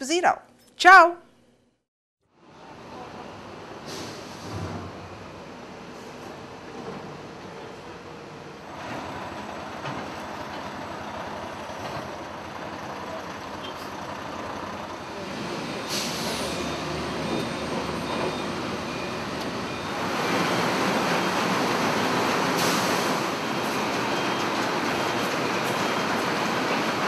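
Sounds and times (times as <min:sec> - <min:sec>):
heavy truck running: 0:02.4 - 0:27.0
air brake hiss: 0:03.8 - 0:04.7, 0:15.9 - 0:16.7, 0:22.6 - 0:23.2.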